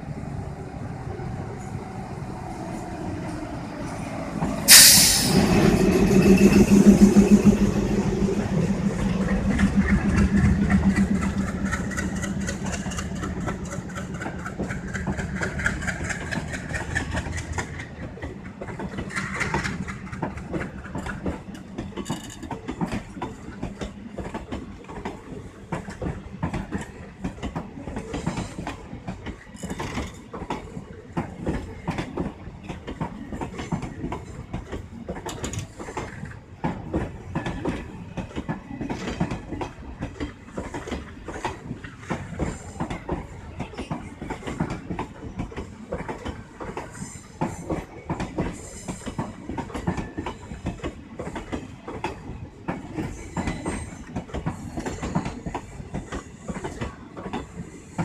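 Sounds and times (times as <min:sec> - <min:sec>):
diesel locomotive engine drone: 0:00.0 - 0:29.4
train wheels clicking over rail joints: 0:02.6 - 0:58.0.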